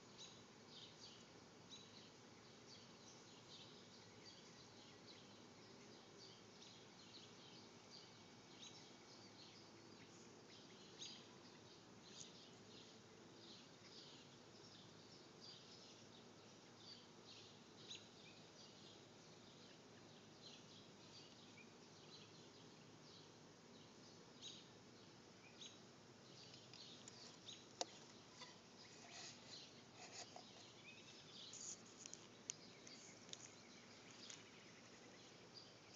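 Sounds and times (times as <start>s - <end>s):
outdoor hiss: 0.0s - 35.9s
nestlings chirping: 25.4s - 35.9s.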